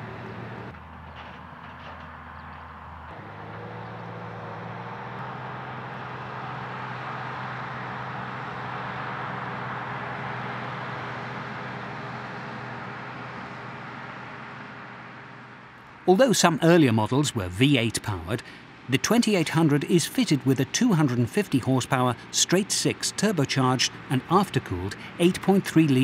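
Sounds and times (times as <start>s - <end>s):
diesel engine running under load: 0.0s - 16.0s, 16.7s - 26.0s.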